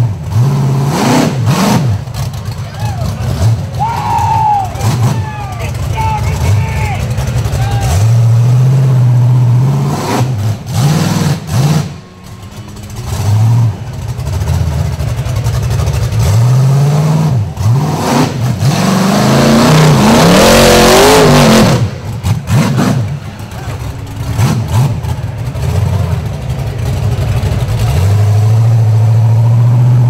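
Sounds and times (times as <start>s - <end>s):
engine revving hard: 0.0s - 30.0s.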